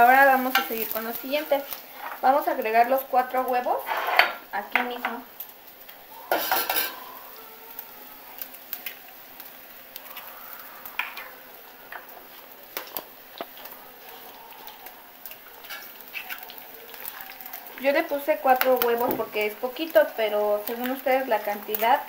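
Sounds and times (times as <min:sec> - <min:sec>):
meat sizzling in a pot: 0:00.0 - 0:22.0
eggs cracking: 0:07.8 - 0:19.1
soft wet squishes: 0:12.3 - 0:17.9.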